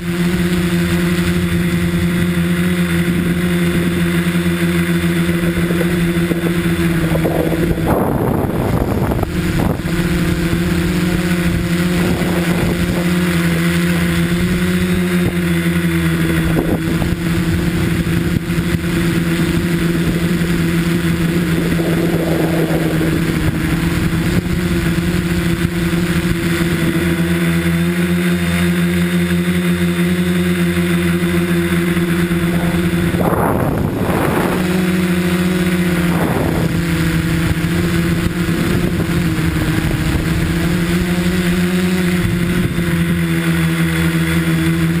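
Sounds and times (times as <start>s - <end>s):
drone motors and propellers whining: 0.0s - 45.0s
rushing noise: 18.4s - 26.4s, 31.6s - 40.6s.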